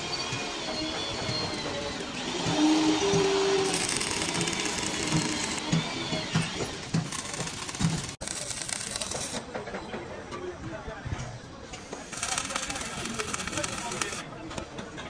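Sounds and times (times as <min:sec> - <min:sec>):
electric power tool whirring: 0:00.0 - 0:09.4, 0:11.8 - 0:14.2.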